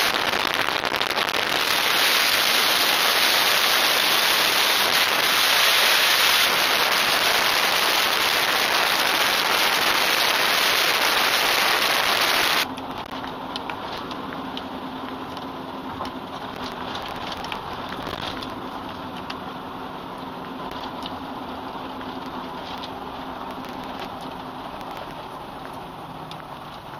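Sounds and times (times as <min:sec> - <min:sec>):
wind rushing over camera: 0:00.0 - 0:12.7
car engine and road hum: 0:00.0 - 0:26.9.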